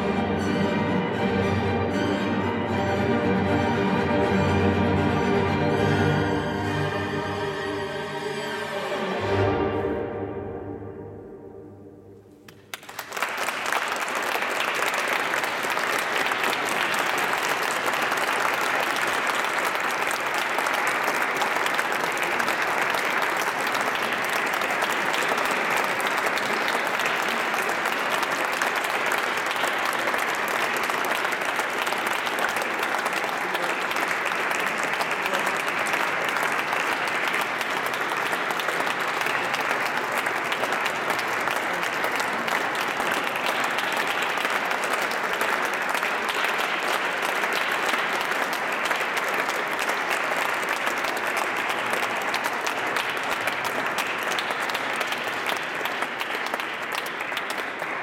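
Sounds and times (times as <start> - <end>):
orchestra chord: 0.0 - 12.4
audience applauding: 12.5 - 58.0.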